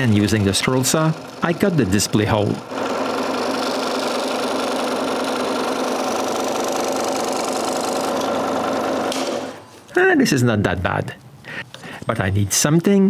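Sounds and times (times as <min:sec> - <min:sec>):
scroll saw cutting plastic: 0:00.8 - 0:09.6.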